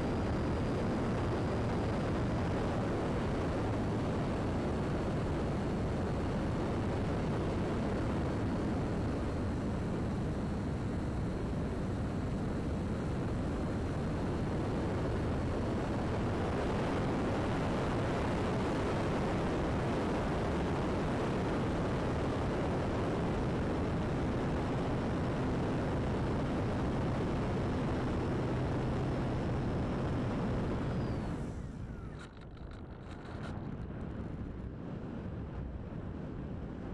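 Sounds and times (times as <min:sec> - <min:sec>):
faint high whine: 0:00.0 - 0:35.0.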